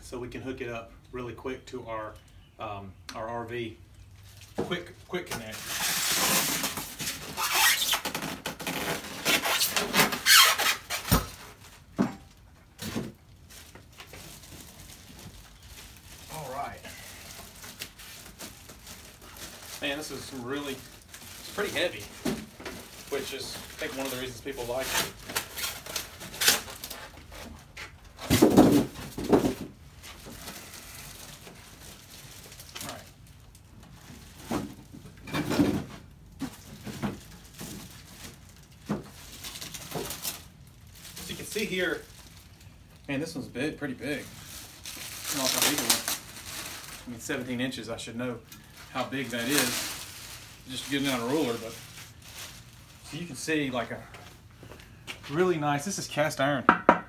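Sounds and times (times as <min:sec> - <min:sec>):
foam and plastic bag creaking: 0:03.6 - 0:54.4
plastic wrap rustling: 0:03.9 - 0:56.0
foam squeaking: 0:05.6 - 0:11.4.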